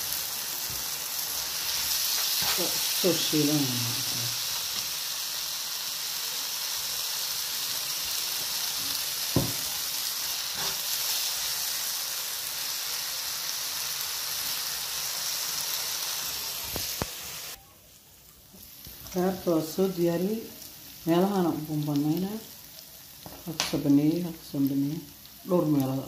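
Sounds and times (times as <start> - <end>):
vegetables sizzling in a pan: 0.0 - 26.0
sharp knock: 9.4 - 9.6.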